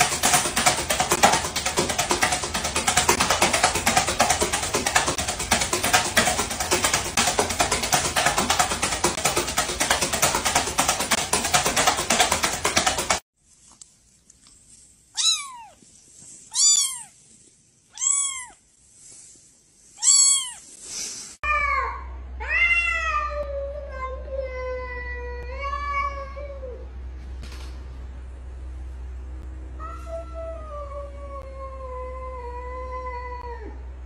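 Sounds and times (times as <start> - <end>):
cat yowling: 15.2 - 15.8, 16.5 - 17.2, 17.9 - 18.6, 20.0 - 20.6
kitten meowing: 15.2 - 15.8, 16.5 - 17.2, 17.9 - 18.6, 20.0 - 20.7.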